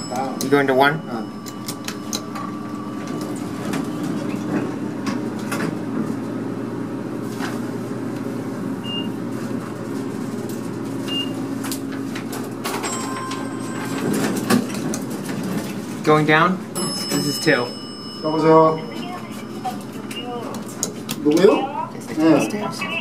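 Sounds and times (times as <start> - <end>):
elevator car humming: 0.0 - 21.9.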